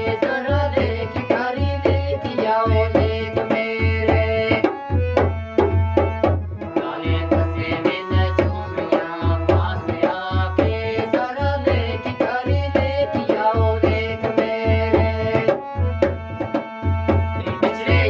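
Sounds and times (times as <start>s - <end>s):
man singing: 0.0s - 4.7s, 6.6s - 15.6s, 17.4s - 18.0s
hand drum beating: 0.0s - 18.0s
harmonium chords: 0.0s - 18.0s.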